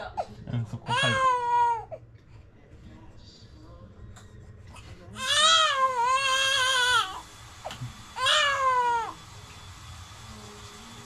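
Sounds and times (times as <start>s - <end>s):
newborn baby crying: 0.8s - 2.0s, 5.2s - 7.2s, 8.2s - 9.2s.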